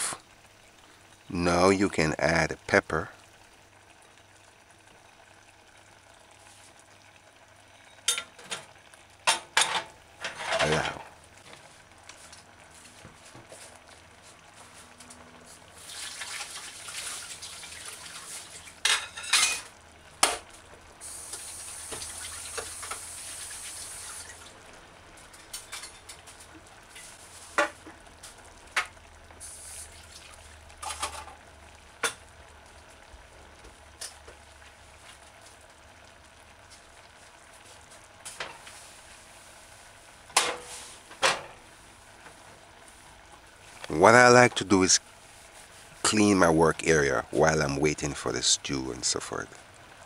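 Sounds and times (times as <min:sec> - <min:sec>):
hiss: 0:00.0 - 0:00.2, 0:21.0 - 0:24.4, 0:29.4 - 0:30.1
utensils and dishes clinking: 0:09.4 - 0:11.1.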